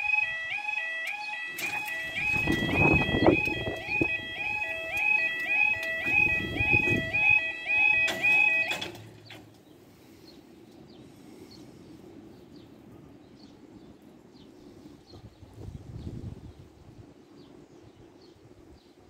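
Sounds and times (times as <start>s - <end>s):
level crossing warning alarm: 0.0s - 9.4s
small birds chirping: 9.2s - 19.0s.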